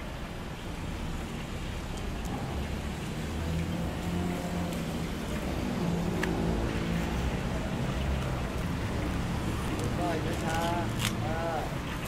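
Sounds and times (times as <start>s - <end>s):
traffic noise: 0.0s - 12.0s
cleaver cutting crisp skin: 9.6s - 11.2s.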